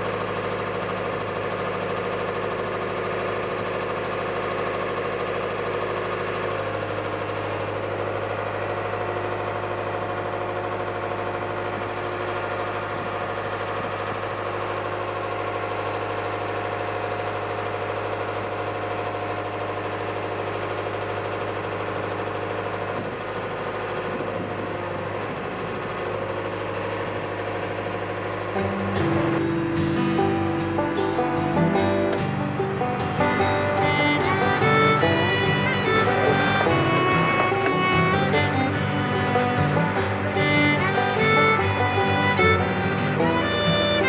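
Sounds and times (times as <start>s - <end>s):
truck diesel engine running: 0.0s - 44.0s.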